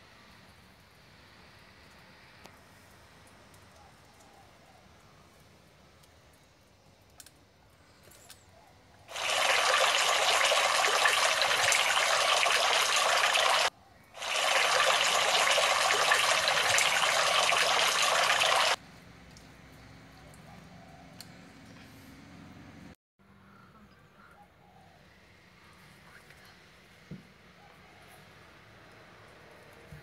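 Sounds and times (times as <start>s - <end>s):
water spraying with rushing hiss: 9.1s - 18.8s.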